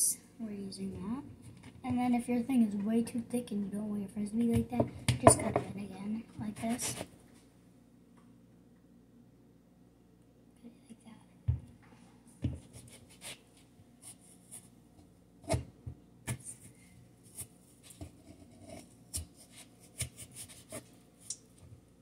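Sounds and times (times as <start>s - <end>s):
knife slicing potato on board: 15.4s - 16.6s, 17.3s - 20.9s.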